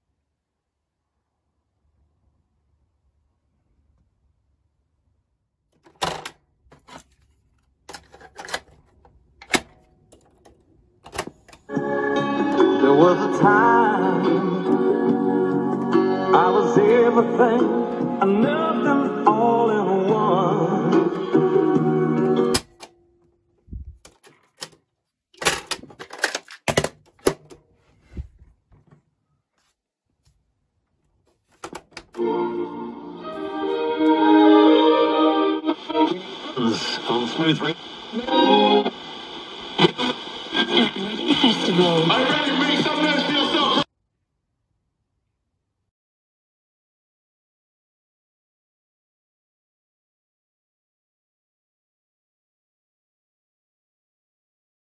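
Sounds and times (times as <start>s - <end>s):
plastic cassette clicks and clacks: 7.9s - 11.6s, 25.4s - 27.6s
cassette door clicks and clunks: 9.4s - 10.4s, 11.0s - 11.5s
music from cassette: 11.1s - 22.8s, 31.6s - 43.8s.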